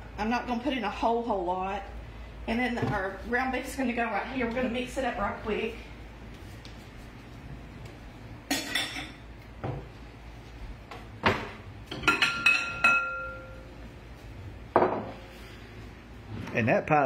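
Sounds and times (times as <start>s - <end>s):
dishes clattering and clinking: 8.4s - 9.9s, 11.2s - 13.6s.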